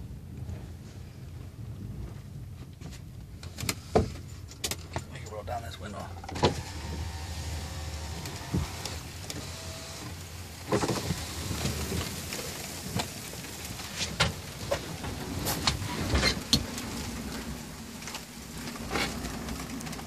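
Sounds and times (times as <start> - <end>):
rain taps: 3.4 - 20.0
rain hiss from outside: 3.5 - 20.0
electric window motor running: 6.3 - 13.6.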